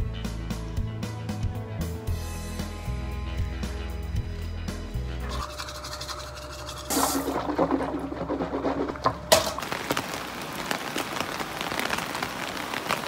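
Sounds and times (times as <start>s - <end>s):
water running from a tap: 5.3s - 10.2s
rain pattering on pavement: 8.9s - 13.0s.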